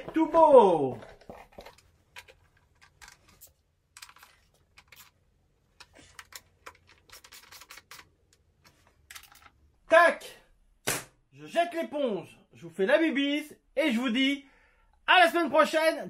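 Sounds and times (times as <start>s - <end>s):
tools being handled: 0.9s - 9.6s.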